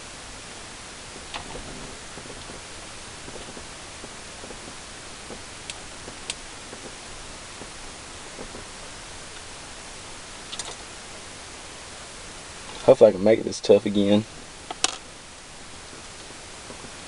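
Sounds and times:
faint rustling of wires: 0.0 - 17.0
steady hiss: 0.0 - 17.0
small clicks: 10.5 - 10.8.

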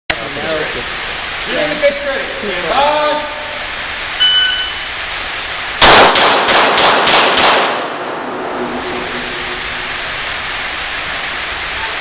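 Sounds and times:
shot timer beep: 4.2 - 4.8
pistol shots echoing: 5.8 - 8.2.

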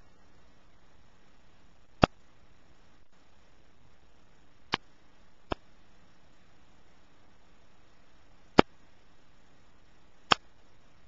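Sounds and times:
faint hiss: 0.0 - 11.0.

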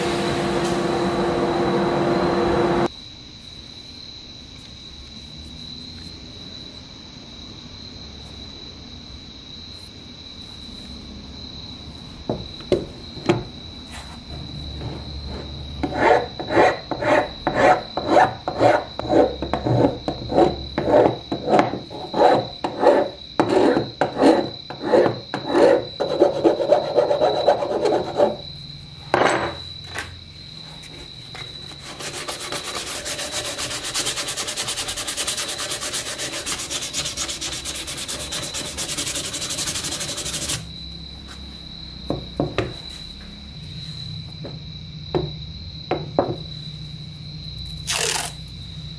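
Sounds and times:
scraper blade rasping on wood: 15.8 - 28.4, 31.8 - 40.6
sandpaper rubbing wood: 31.8 - 40.7.

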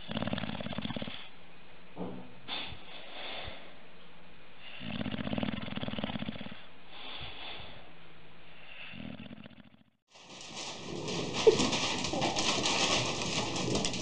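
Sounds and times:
dog snoring: 0.0 - 1.3, 4.6 - 7.3, 8.6 - 9.9.

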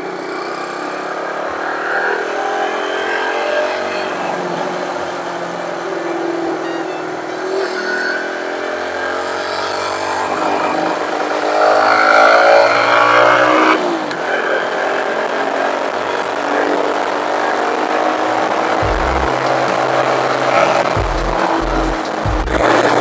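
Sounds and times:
small motorcycle engine running: 7.2 - 23.0.

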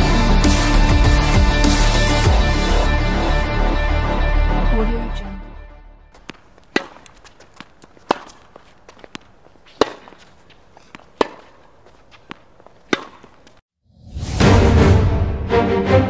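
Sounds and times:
music: 0.0 - 6.2, 14.0 - 16.0
tennis ball hit by racquets: 6.2 - 13.6.

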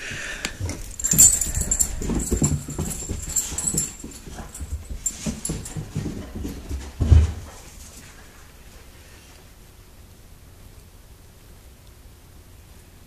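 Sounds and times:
excited dogs: 0.6 - 8.2
thuds and scuffles: 0.6 - 8.2.

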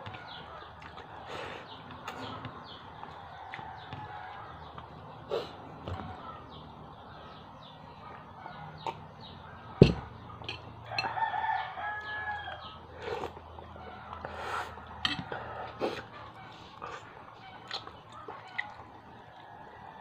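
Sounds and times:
rooster crowing: 10.8 - 12.8.

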